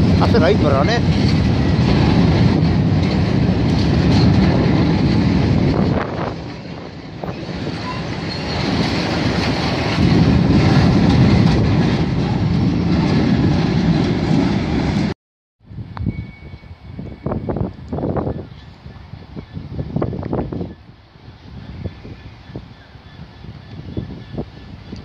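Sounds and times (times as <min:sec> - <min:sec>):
wheels clacking over rail joints: 0:00.0 - 0:15.1
freight train wheels rumbling: 0:00.0 - 0:25.0.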